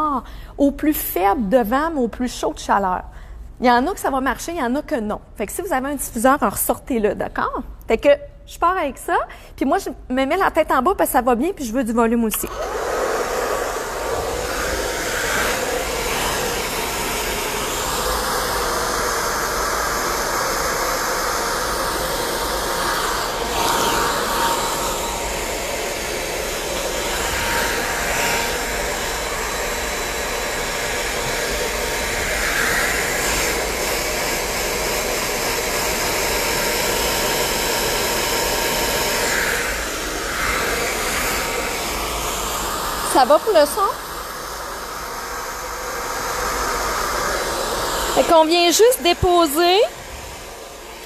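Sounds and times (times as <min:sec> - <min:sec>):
hair dryer running: 0:12.3 - 0:51.0.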